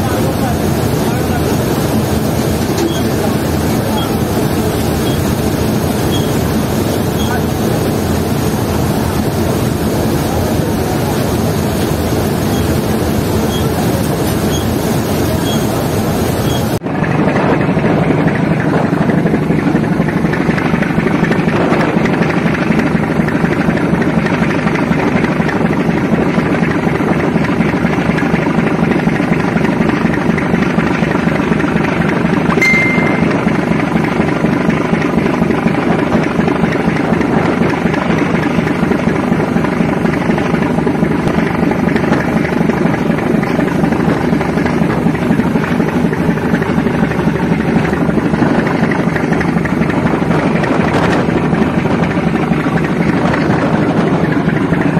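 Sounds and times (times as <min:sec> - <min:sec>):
boat engines droning: 0:00.0 - 0:54.9
rushing water of wake: 0:00.0 - 0:54.9
high beep: 0:32.6 - 0:33.6.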